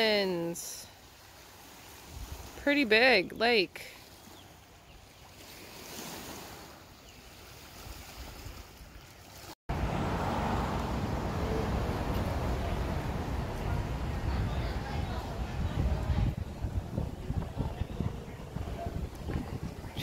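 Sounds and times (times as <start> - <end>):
wind on microphone: 2.0 - 2.6, 9.8 - 20.0
street noise: 9.7 - 20.0.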